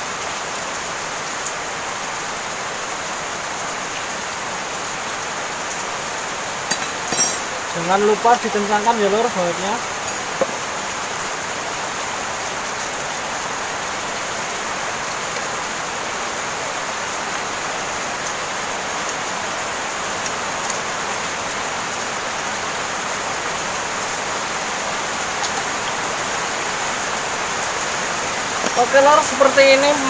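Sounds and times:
heavy rain: 0.0 - 30.0.

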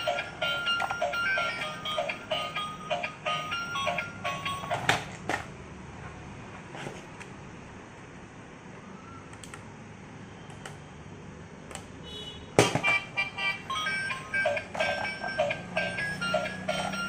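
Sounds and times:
electronic beeping toy tune: 0.0 - 4.9, 12.8 - 17.0.

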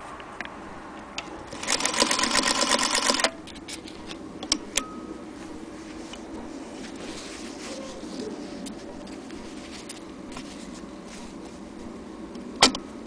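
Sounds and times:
sewing machine stitching: 1.5 - 3.3.

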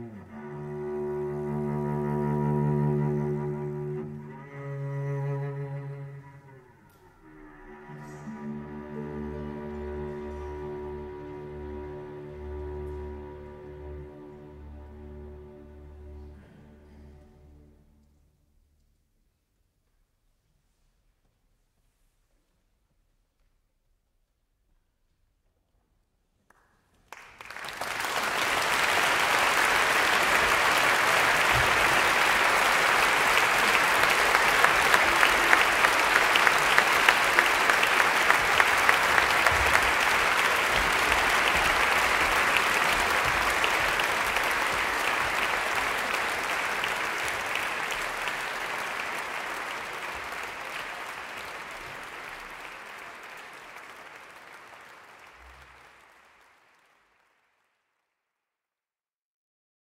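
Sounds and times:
audience applauding: 7.2 - 17.2, 26.5 - 57.9.

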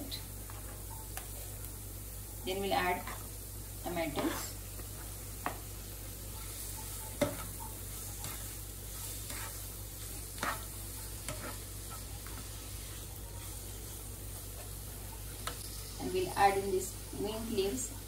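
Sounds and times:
food sizzling in a frying pan: 0.0 - 18.0
spatula scraping a pan: 4.1 - 5.6, 6.3 - 14.8.

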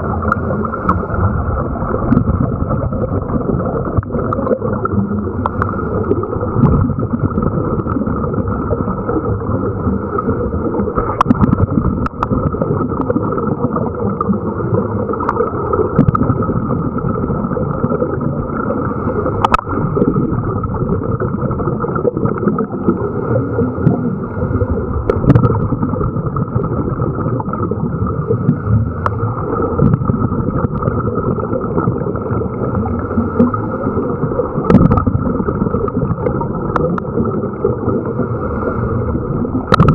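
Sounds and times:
muffled underwater rush of water: 0.0 - 39.9.

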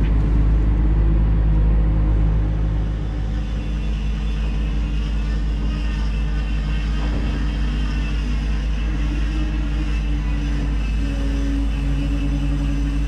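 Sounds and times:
boat diesel engine droning: 0.0 - 13.0.

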